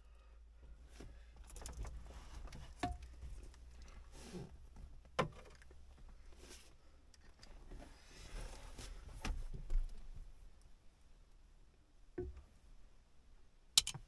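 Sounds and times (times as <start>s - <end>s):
tool and wire clicks: 13.8s - 14.0s.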